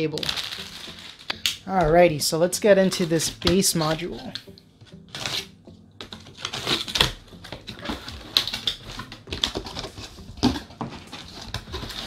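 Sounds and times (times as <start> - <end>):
cardboard flaps scraping: 6.1 - 12.0.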